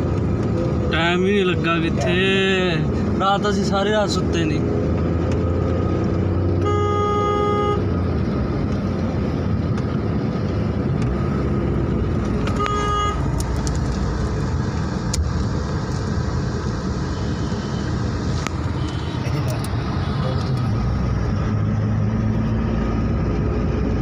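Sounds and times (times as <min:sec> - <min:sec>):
car engine and road noise: 0:00.0 - 0:24.0
car horn: 0:06.6 - 0:07.9, 0:12.5 - 0:13.2, 0:18.7 - 0:19.4.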